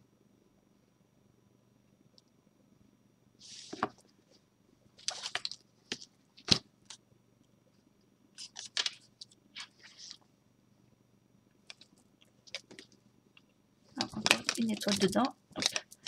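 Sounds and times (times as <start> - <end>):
hands rustling objects: 13.9 - 16.0.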